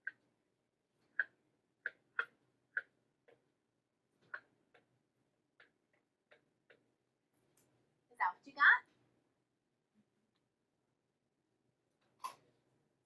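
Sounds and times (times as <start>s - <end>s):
stylus tapping on tablet screen: 1.0s - 3.5s, 4.2s - 7.0s.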